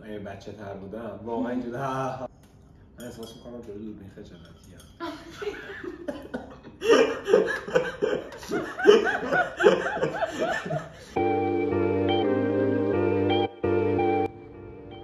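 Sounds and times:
woman laughing: 5.0 - 11.2
background music: 8.8 - 15.0.

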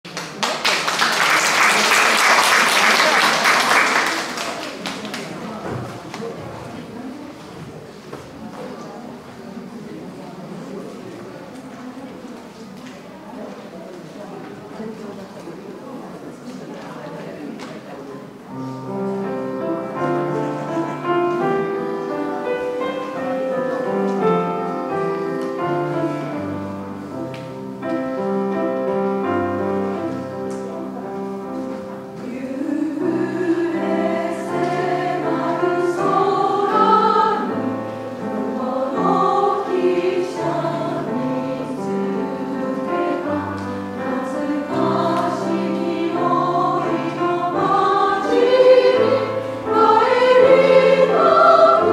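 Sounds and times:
grand piano playing slowly: 18.4 - 51.9
women's choir singing: 18.5 - 28.0, 29.2 - 51.9.

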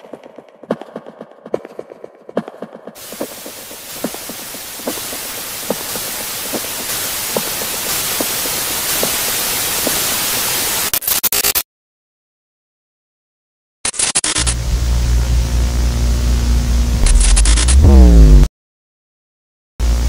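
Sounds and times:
static hiss: 3.0 - 11.6.

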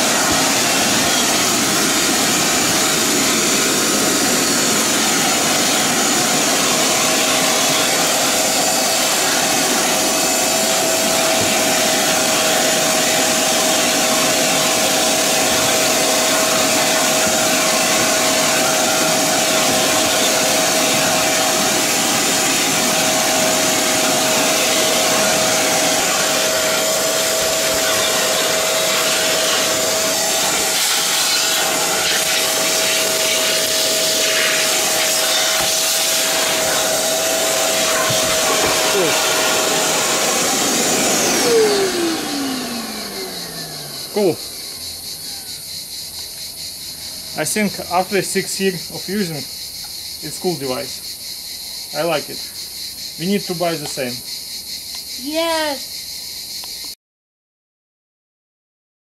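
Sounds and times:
vacuum motor winding down: 0.0 - 45.6
vacuum cleaner whining: 0.0 - 55.8.

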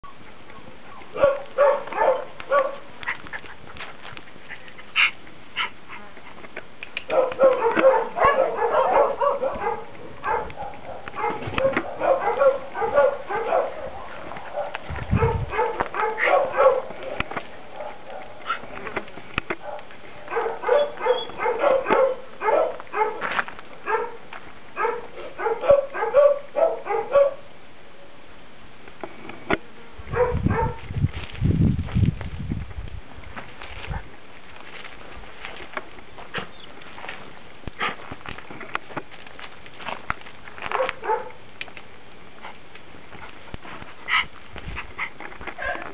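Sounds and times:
dog yapping: 0.9 - 2.9, 7.1 - 16.9, 19.7 - 23.2, 24.8 - 27.4, 40.7 - 41.4, 45.0 - 45.9.

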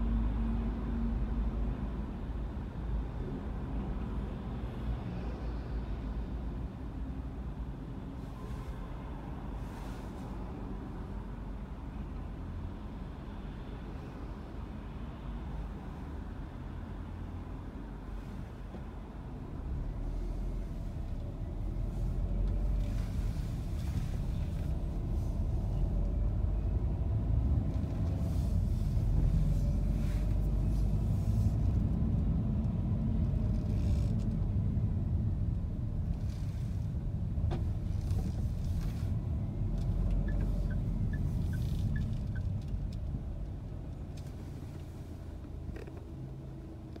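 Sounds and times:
engine and tyre rumble inside car: 0.0 - 47.0.

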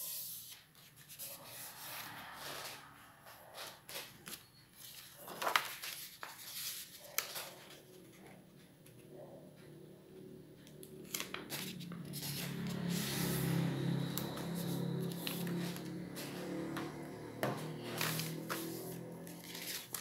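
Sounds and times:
paper rustling being folded: 3.6 - 8.3, 11.0 - 16.6, 17.8 - 20.0
sharp paper crackle: 3.9 - 7.8, 11.1 - 12.6, 17.9 - 20.0.

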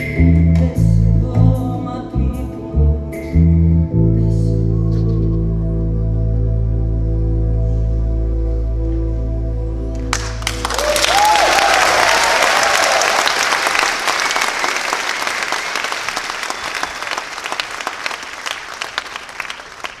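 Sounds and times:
music final chord: 3.9 - 11.0
audience applause: 10.1 - 20.0
audience cheer: 10.4 - 20.0.

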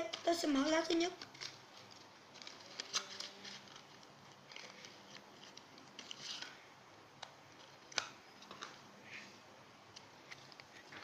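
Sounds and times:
packaging rustling: 0.0 - 6.6
trading card packaging clicks: 0.0 - 6.6, 7.2 - 8.8.

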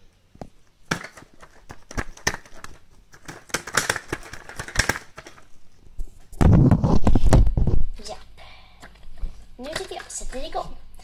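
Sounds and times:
toy clicks and taps: 9.6 - 10.6.

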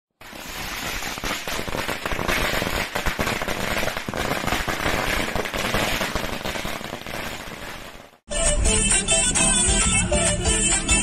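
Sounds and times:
firecrackers popping: 0.1 - 8.3.

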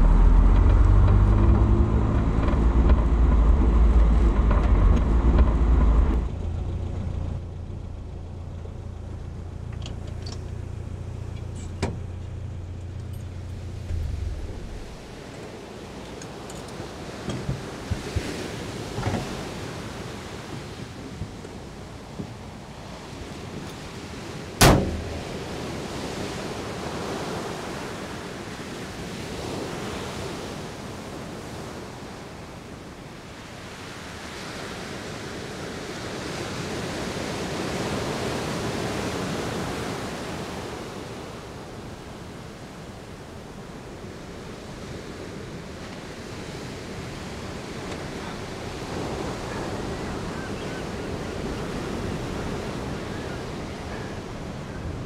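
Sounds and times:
sea surf rushing: 0.0 - 7.1, 12.0 - 55.0
wind: 0.0 - 55.0
sharp bang: 24.6 - 25.4.

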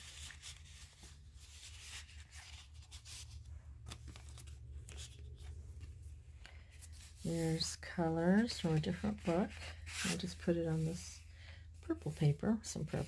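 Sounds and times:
paper rustling: 0.0 - 11.0
low steady hum: 0.0 - 13.0.

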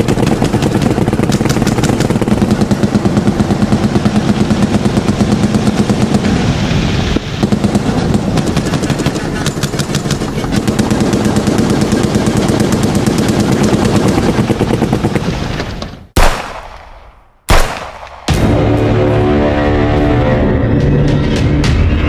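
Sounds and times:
machine-gun fire: 0.0 - 6.5, 7.4 - 15.4, 16.2 - 18.4
loud single bangs with echo: 16.2 - 18.4.

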